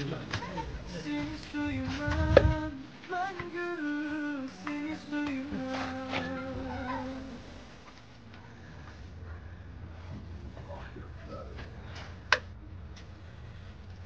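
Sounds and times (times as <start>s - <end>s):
person chanting slow melody: 2.1s - 7.7s.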